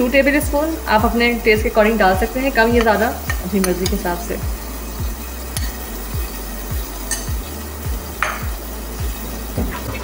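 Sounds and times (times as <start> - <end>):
background music with a beat: 2.7 - 10.0.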